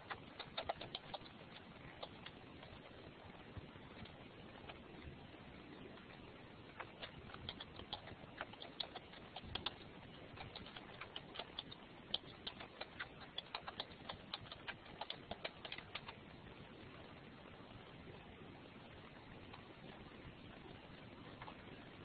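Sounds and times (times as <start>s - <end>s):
faint keyboard typing: 0.0s - 5.2s, 5.9s - 16.3s.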